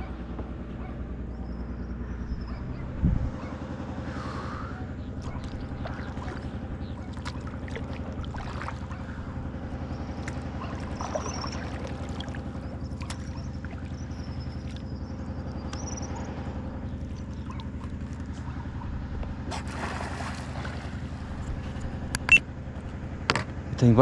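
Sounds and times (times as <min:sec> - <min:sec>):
motor running steadily: 0:00.0 - 0:24.0
paddle splashing water: 0:05.2 - 0:15.0, 0:17.0 - 0:22.0.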